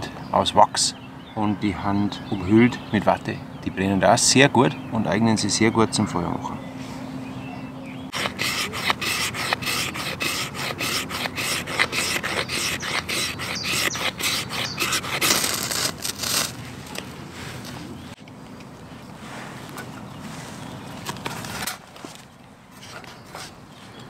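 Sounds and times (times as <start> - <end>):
fire steel rod scraping: 8.1 - 17.8.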